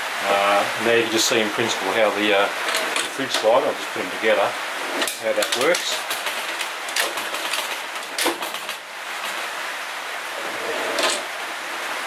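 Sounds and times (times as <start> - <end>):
metallic rolling of drawer runners: 2.6 - 3.6, 4.8 - 9.6, 10.4 - 11.4.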